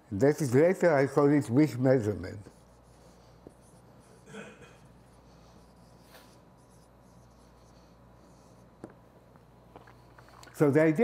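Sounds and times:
marker squeaking on whiteboard: 0:05.5 - 0:08.9.

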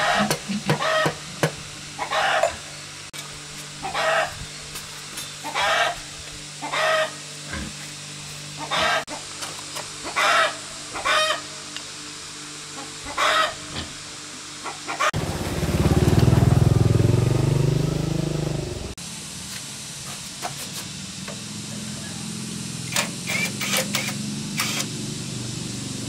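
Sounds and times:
chicken clucking: 0:08.6 - 0:09.1.

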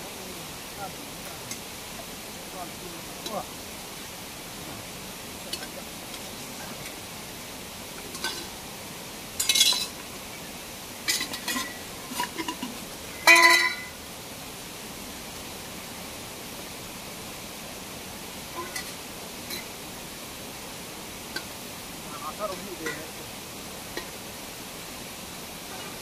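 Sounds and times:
falling water rushing: 0:00.0 - 0:26.0
metal pots and utensils clanking: 0:05.5 - 0:07.0, 0:08.0 - 0:08.6, 0:09.4 - 0:10.0, 0:11.0 - 0:14.0, 0:18.5 - 0:19.7, 0:22.8 - 0:23.3, 0:23.9 - 0:24.2, 0:25.7 - 0:26.0.

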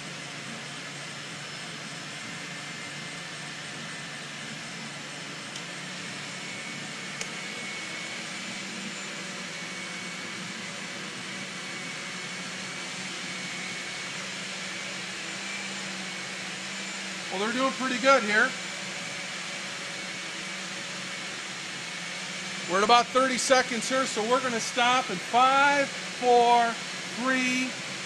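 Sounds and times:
blenders whirring: 0:00.0 - 0:28.0
thin high whine: 0:00.0 - 0:28.0.

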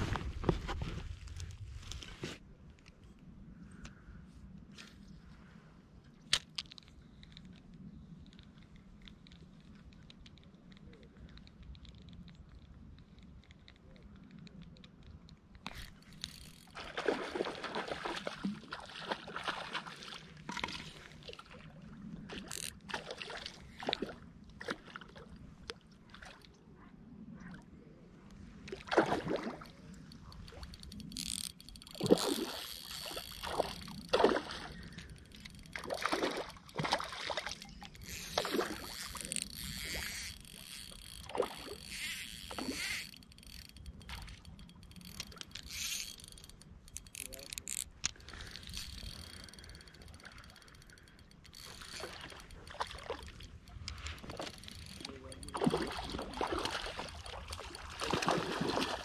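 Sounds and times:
water splashing against boat hull: 0:51.6 - 0:59.0.

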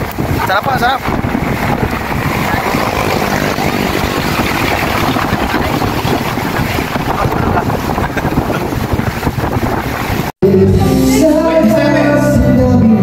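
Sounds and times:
wind buffeting microphone: 0:00.0 - 0:10.4
music: 0:10.4 - 0:13.0.

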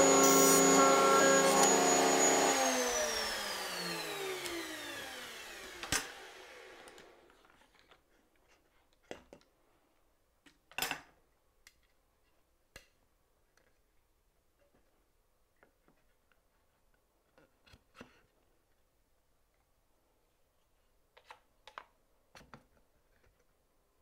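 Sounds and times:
router running: 0:00.0 - 0:07.3
router spinning down with whine: 0:00.0 - 0:07.3.

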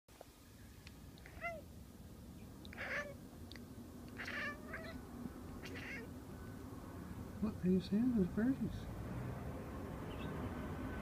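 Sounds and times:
cat chirping meows: 0:01.2 - 0:01.7, 0:02.6 - 0:03.2, 0:04.1 - 0:05.0, 0:05.6 - 0:06.1.

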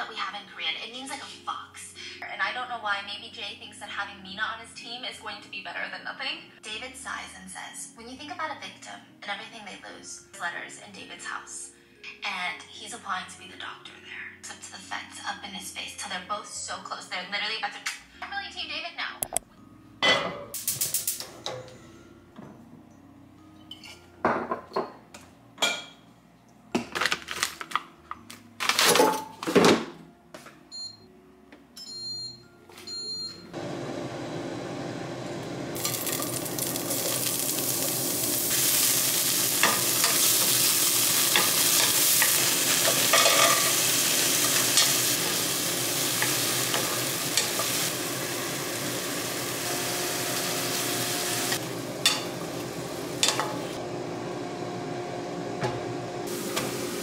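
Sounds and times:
kitchen knocks and clatter: 0:23.7 - 0:25.0
mushrooms sizzling in a frying pan: 0:35.8 - 0:53.8, 0:56.3 - 0:57.0.

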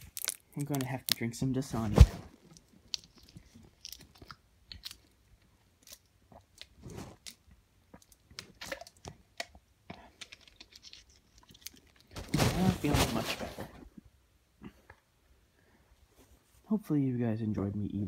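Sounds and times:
person chewing: 0:00.0 - 0:00.9, 0:02.4 - 0:12.1
plastic water bottle crinkling: 0:00.0 - 0:05.2, 0:05.8 - 0:13.8.

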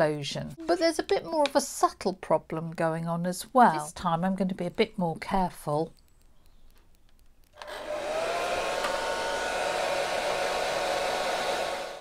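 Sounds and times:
hair dryer running: 0:07.6 - 0:12.0.

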